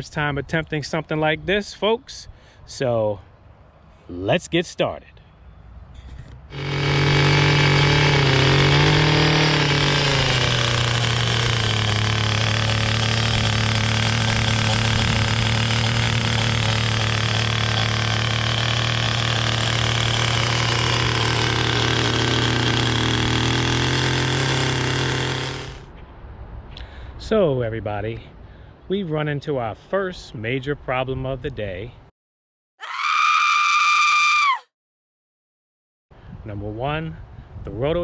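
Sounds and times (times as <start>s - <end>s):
rototiller engine running: 6.5s - 25.9s.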